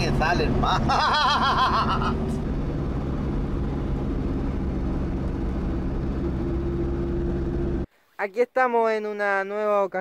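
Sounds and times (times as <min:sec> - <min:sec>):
vehicle engine drone: 0:00.0 - 0:07.9
road noise: 0:00.0 - 0:08.1.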